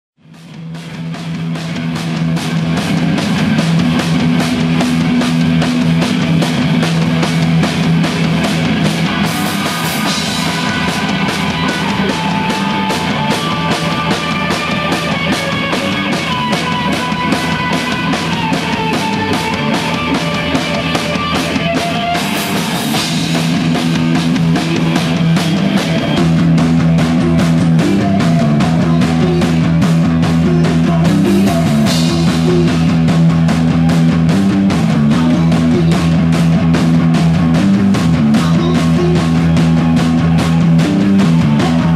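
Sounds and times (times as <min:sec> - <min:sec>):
drums pounding beat: 0:00.2 - 0:41.9
electric guitar: 0:00.4 - 0:41.9.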